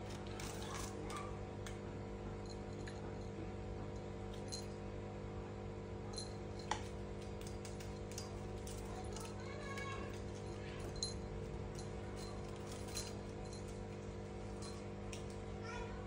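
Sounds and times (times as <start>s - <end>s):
steady low hum: 0.0s - 16.0s
clicks and taps on tiled floor: 6.6s - 11.1s.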